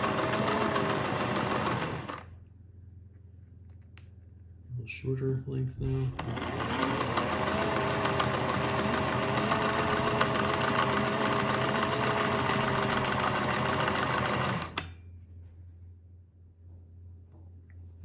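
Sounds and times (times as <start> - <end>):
sewing machine motor whine: 0.0 - 2.3, 6.1 - 14.9
sewing machine needle clatter: 6.2 - 14.9.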